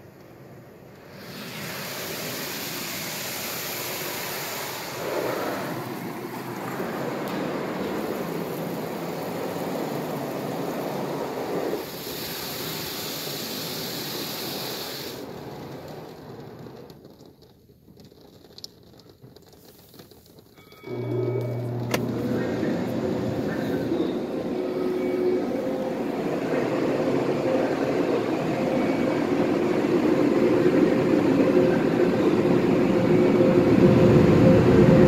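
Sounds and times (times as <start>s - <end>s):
water jets spraying over car: 0.3s - 20.7s.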